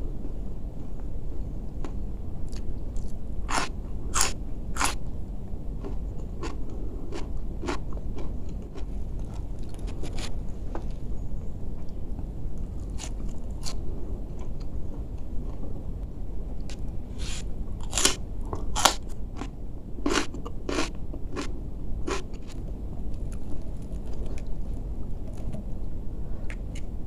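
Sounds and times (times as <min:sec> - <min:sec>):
low background hum: 0:00.0 - 0:27.0
crunching cucumber bites: 0:02.5 - 0:05.0, 0:05.8 - 0:10.4, 0:12.8 - 0:13.8, 0:16.7 - 0:24.6.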